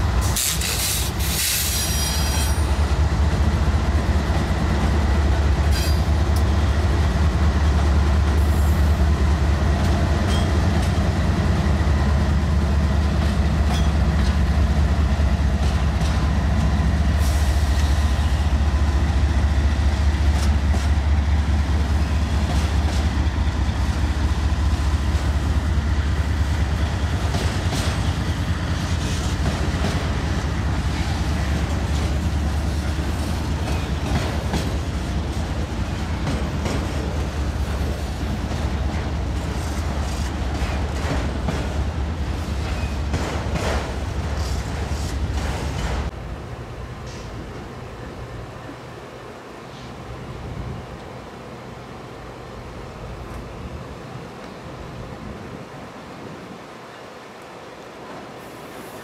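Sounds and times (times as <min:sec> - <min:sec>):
train wheels clicking over rail joints: 0:00.0 - 0:46.2
locomotive engines rumbling: 0:00.0 - 0:59.0.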